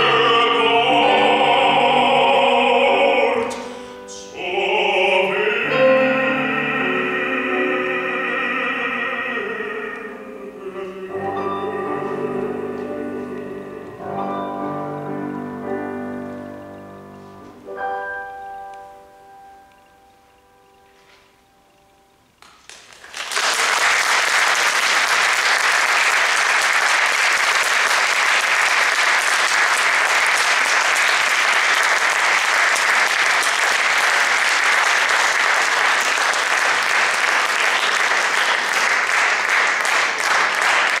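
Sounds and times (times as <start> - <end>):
piano chord: 0.0 - 22.2
audience applause: 22.6 - 41.0.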